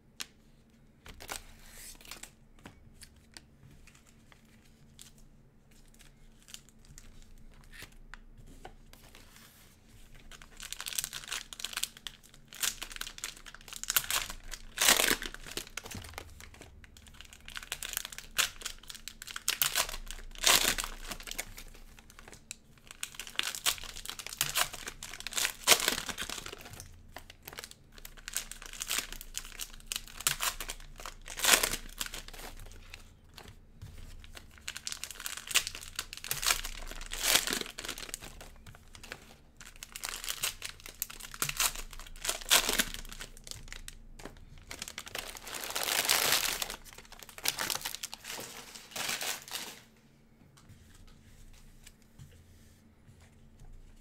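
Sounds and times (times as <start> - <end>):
cellophane wrappers tearing and crinkling: 10.2 - 33.0, 34.2 - 49.9.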